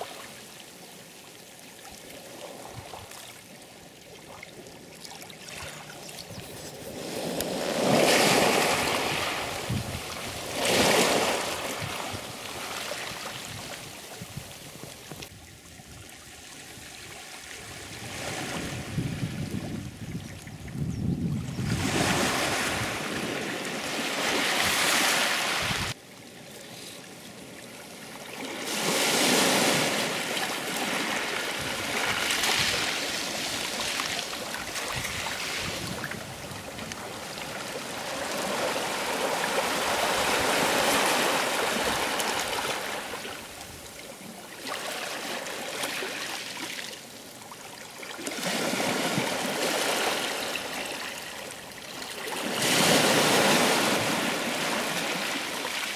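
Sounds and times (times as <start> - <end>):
sea waves breaking on shore: 2.0 - 15.3, 21.6 - 26.0, 26.9 - 55.9.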